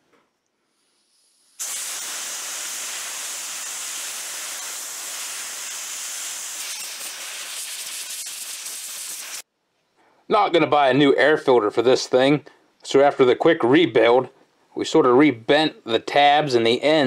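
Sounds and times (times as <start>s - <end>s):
steady hiss: 0.6s - 9.5s.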